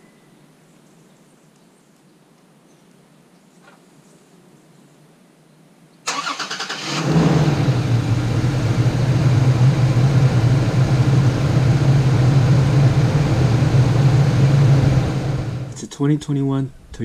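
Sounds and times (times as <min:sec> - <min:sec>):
engine starter cranking: 0:06.1 - 0:07.8
pickup engine idling: 0:06.2 - 0:15.8.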